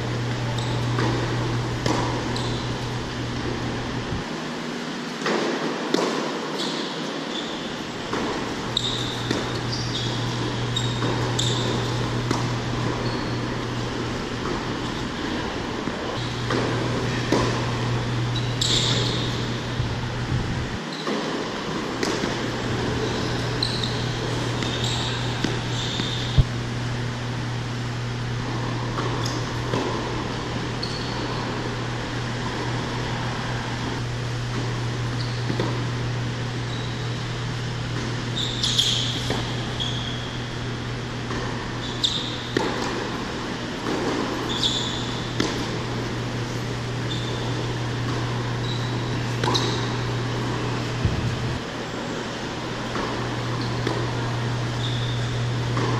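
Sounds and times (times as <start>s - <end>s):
shoes squeaking: 0.0s - 26.5s, 28.4s - 34.0s, 34.9s - 55.9s
ventilation fans humming: 0.0s - 55.9s
tennis ball struck by racquet: 0.9s - 2.2s, 5.2s - 6.4s, 10.4s - 13.0s, 16.4s - 17.7s, 21.0s - 22.9s, 45.2s - 45.9s.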